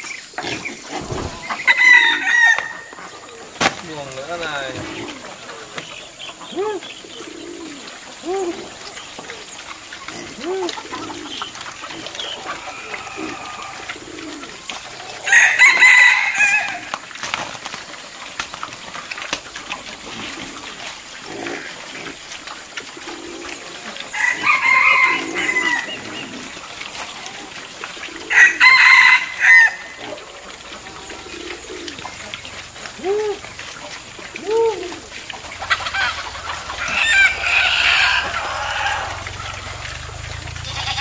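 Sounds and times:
rooster crowing: 0:01.3 - 0:02.9, 0:15.2 - 0:16.9, 0:24.1 - 0:26.0, 0:28.3 - 0:29.9, 0:36.0 - 0:39.6.

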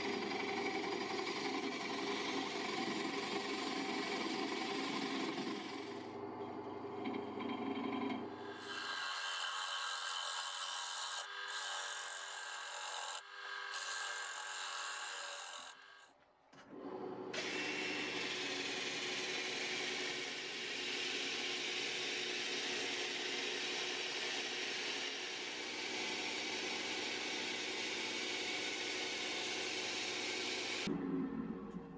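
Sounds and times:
sanding disc rasping on wood: 0:08.6 - 0:16.0.

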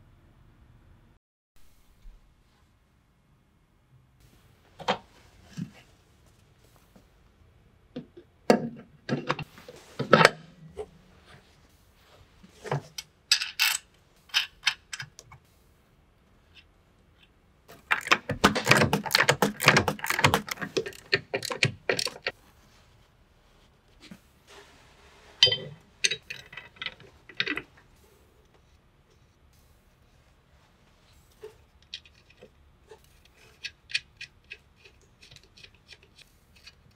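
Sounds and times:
metal clicks and knocks: 0:17.7 - 0:22.3.

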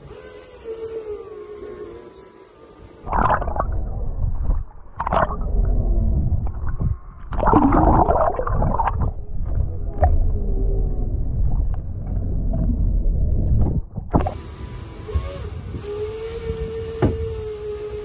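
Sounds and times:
quiet steady hum: 0:00.0 - 0:18.0
muffled underwater rumble: 0:03.0 - 0:14.4.

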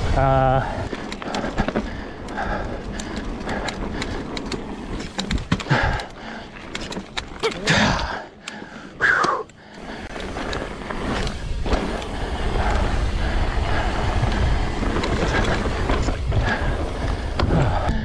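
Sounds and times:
bike tyres on dirt trail: 0:00.0 - 0:18.0
bike knocking: 0:00.8 - 0:18.0
wind buffeting microphone: 0:09.9 - 0:18.0.

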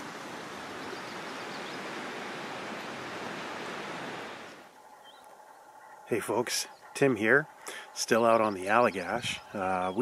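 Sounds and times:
fast river current: 0:00.0 - 0:04.8.

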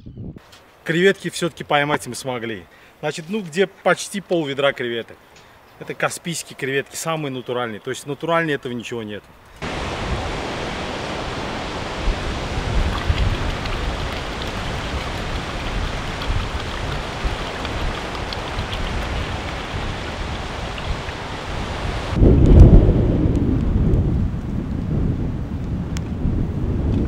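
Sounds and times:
wind buffeting microphone: 0:00.0 - 0:00.4, 0:09.6 - 0:27.0
steady wind: 0:09.2 - 0:27.0
sea washing: 0:09.6 - 0:22.2.

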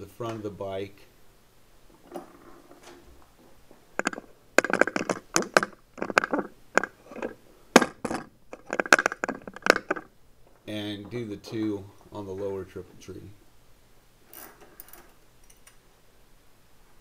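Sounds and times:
microphone handling clicks and knocks: 0:02.0 - 0:11.7.

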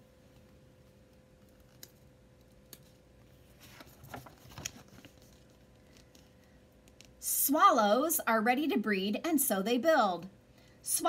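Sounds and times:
paper page rustling: 0:02.8 - 0:06.4.

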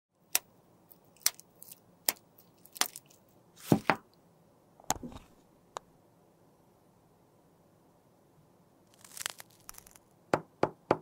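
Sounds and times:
small hard objects clicking: 0:00.3 - 0:03.2, 0:08.9 - 0:10.0.

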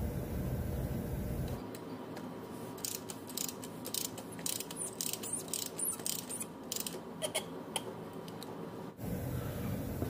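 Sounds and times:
ratchet wrench clicking: 0:02.8 - 0:07.0.

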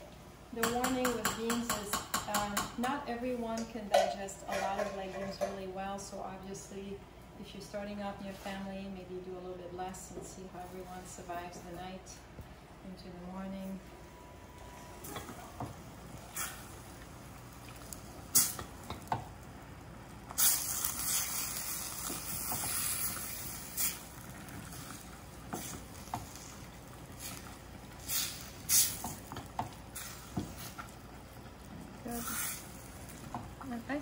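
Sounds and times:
filling sizzling: 0:14.6 - 0:34.0.

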